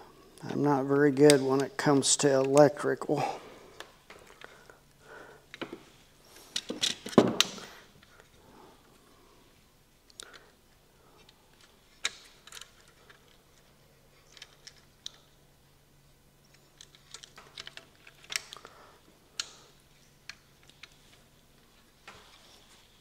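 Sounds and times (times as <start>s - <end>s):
faint steady hum: 0.0s - 23.0s
small parts clicking and tapping: 6.4s - 8.3s, 11.2s - 15.4s, 16.4s - 22.4s.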